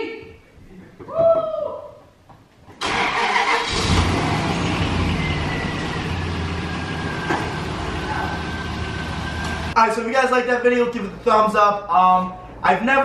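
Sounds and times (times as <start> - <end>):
truck engine idling: 2.9 - 9.8.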